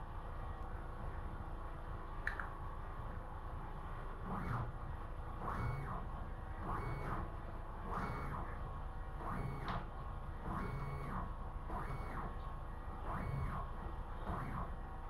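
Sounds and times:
stepper motors whining: 0:09.2 - 0:12.4, 0:13.1 - 0:14.7.

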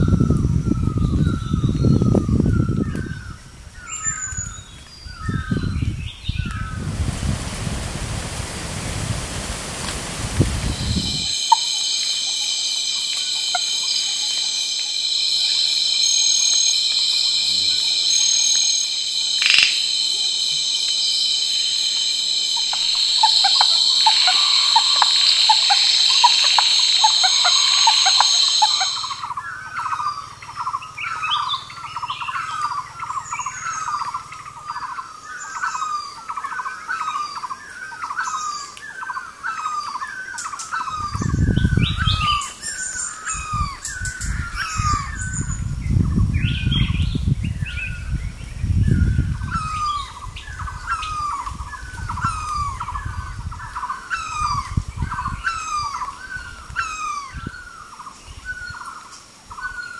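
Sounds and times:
insects trilling: 0:00.0 - 0:59.9
rushing noise: 0:06.7 - 0:29.2
short chirping animal calls: 0:10.7 - 0:29.3.

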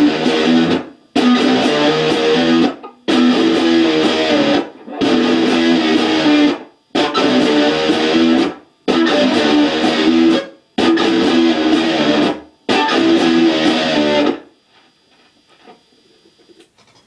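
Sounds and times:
electric guitar phrases: 0:00.0 - 0:14.5.

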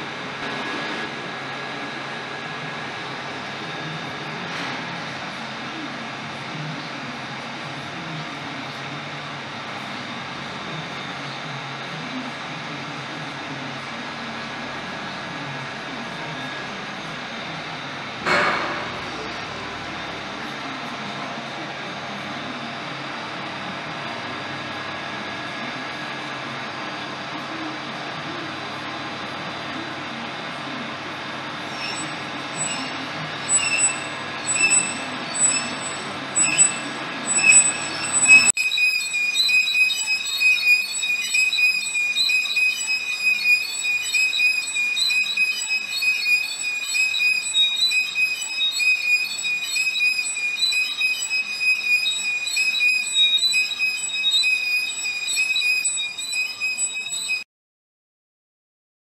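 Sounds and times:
metal lathe running: 0:00.0 - 0:56.8
lathe tool squealing: 0:31.7 - 0:57.4.

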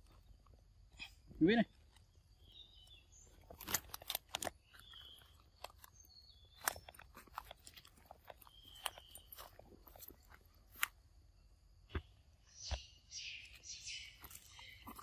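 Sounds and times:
footsteps crunching on dry leaves: 0:06.7 - 0:10.9
faint high chirps: 0:12.1 - 0:15.0.

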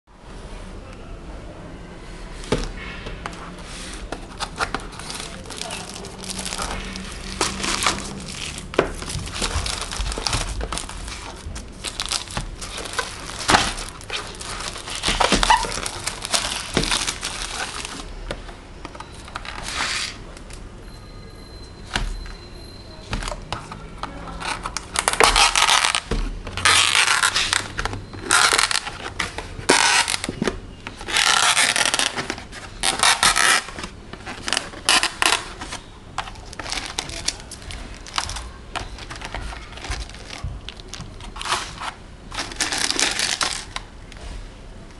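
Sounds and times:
plastic wrapper crinkling and tearing: 0:03.8 - 0:18.3, 0:24.0 - 0:44.2.

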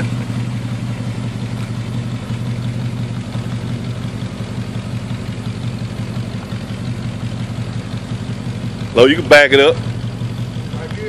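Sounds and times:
car engine running steadily: 0:00.0 - 0:11.0.

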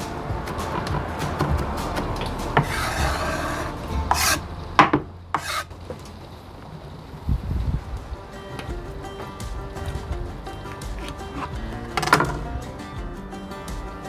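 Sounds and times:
food scraping: 0:00.6 - 0:06.1.

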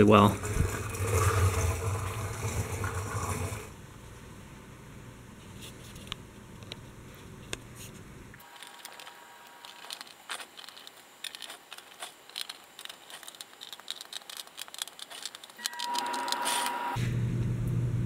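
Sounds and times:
steady hum with high tone: 0:06.6 - 0:18.0
plastic and metal parts clicking: 0:08.4 - 0:16.4.

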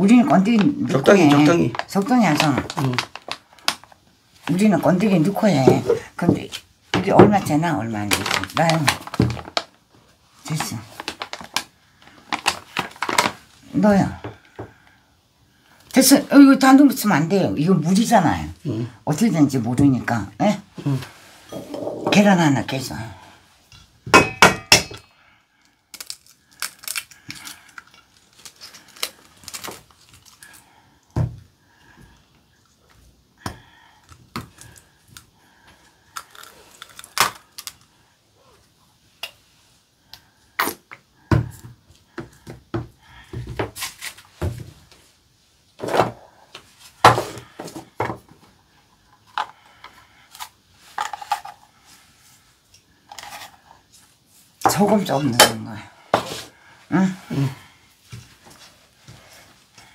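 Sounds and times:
bottles clinking on table: 0:24.1 - 0:25.0.

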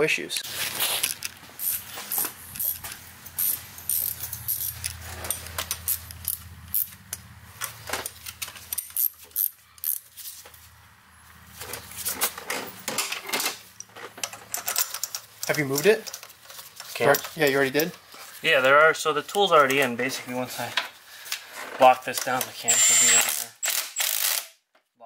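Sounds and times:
metal tools clinking and rattling: 0:01.0 - 0:07.0, 0:11.7 - 0:18.0.

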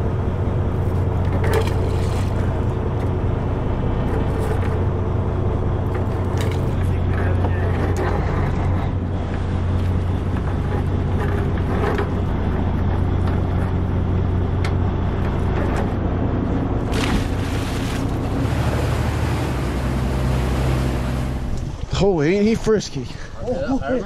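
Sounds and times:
boat engine droning: 0:00.0 - 0:23.0
water splashing: 0:16.9 - 0:21.9.

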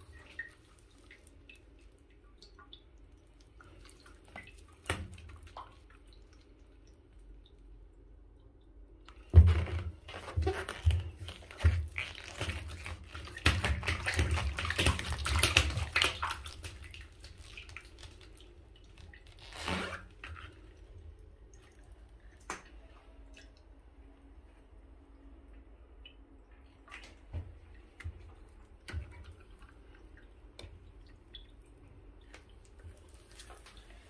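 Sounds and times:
water balloon squishing: 0:09.2 - 0:20.7.

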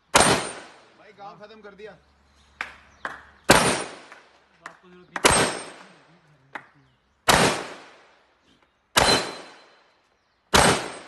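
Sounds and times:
rifle shots: 0:00.1 - 0:00.9, 0:03.5 - 0:04.3, 0:05.2 - 0:06.0, 0:07.2 - 0:08.2, 0:08.9 - 0:09.8, 0:10.5 - 0:11.0.

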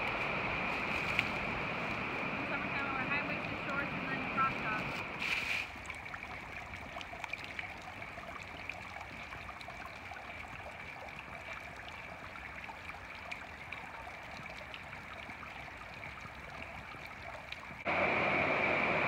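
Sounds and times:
water trickling down rock: 0:05.2 - 0:17.9.

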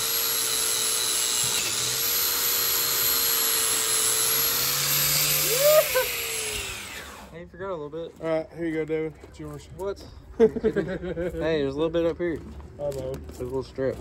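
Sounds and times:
power tool motor running: 0:00.0 - 0:07.4
short rising and falling squeal: 0:04.6 - 0:07.3.

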